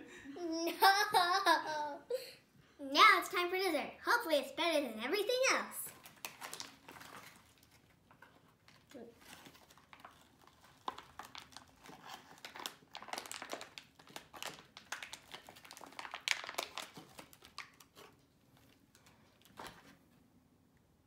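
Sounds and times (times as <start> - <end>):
foil food pouch crinkling: 5.9 - 19.9.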